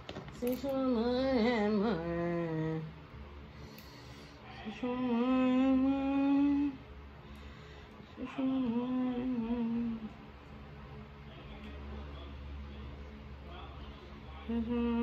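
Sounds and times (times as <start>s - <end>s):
woman humming: 8.2s - 10.2s, 14.5s - 15.0s.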